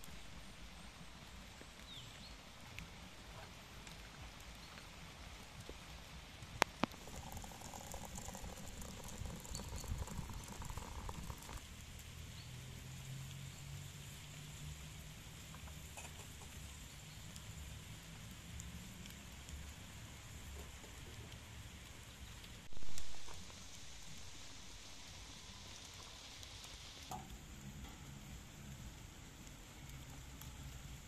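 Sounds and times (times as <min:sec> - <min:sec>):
wood fire crackling: 0:00.0 - 0:31.0
water pouring into teapot: 0:06.6 - 0:11.7.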